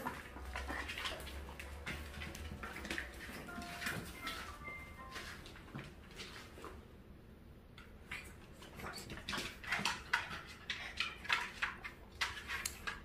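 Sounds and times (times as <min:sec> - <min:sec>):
dogs scuffling on hard floor: 0:00.0 - 0:06.8.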